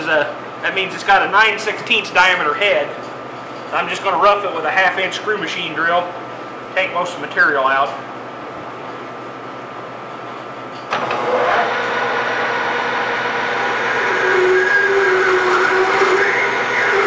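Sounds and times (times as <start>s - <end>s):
metal lathe running: 10.9s - 17.0s
drill cutting metal tone: 11.0s - 17.0s.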